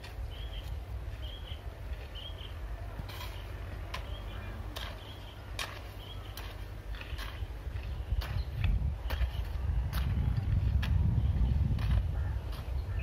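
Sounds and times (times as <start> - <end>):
low wind rumble on microphone: 6.2 - 13.0.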